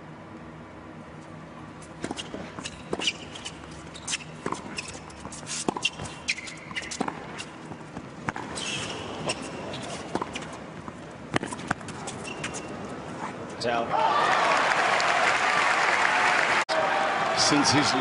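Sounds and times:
shoe squeaks: 1.8s - 10.7s, 11.3s - 13.6s
tennis ball bouncing: 1.9s - 12.6s.

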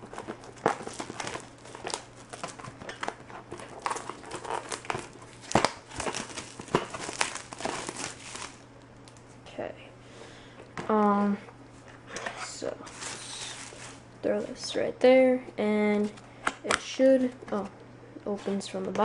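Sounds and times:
plastic shrink wrap crinkling: 0.0s - 9.3s, 12.8s - 14.0s.

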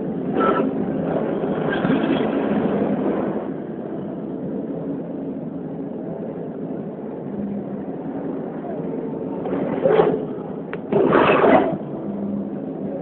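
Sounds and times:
crowd murmur in echoing hall: 3.5s - 13.0s.

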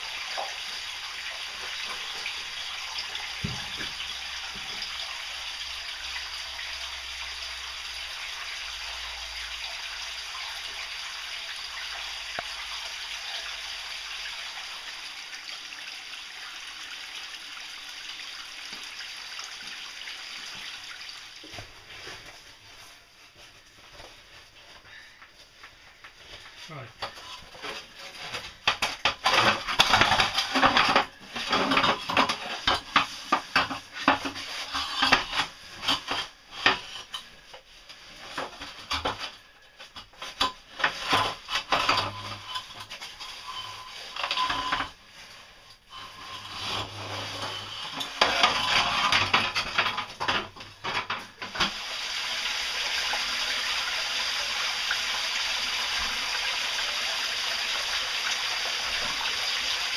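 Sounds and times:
stream of running water: 0.0s - 22.6s, 50.9s - 59.9s.

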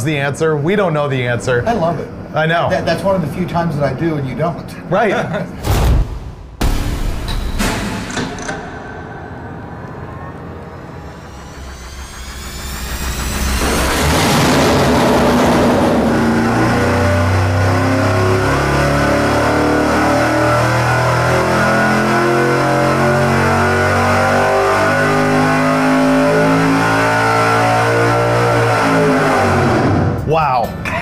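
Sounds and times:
engine at full throttle: 9.8s - 30.2s.

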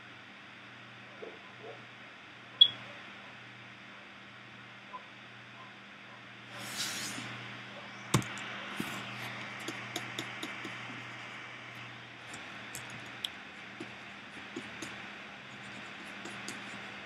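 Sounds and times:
low electrical hum: 0.0s - 17.0s
computer mouse clicks: 9.6s - 10.9s.

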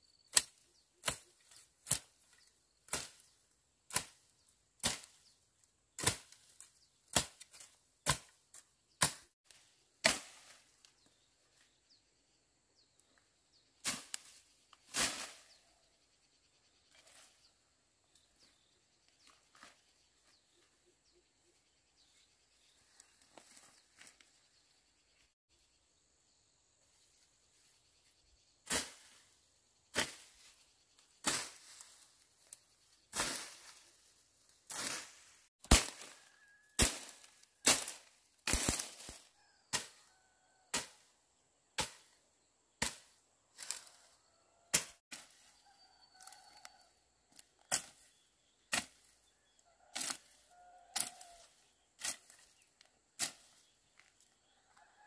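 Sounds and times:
blade slashing through weeds: 34.7s - 40.0s.

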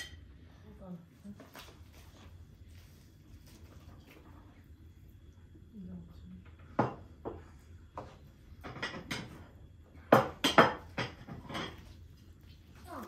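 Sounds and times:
cutlery clinking and scraping on plates: 0.0s - 0.2s, 8.1s - 9.5s, 10.2s - 12.0s.

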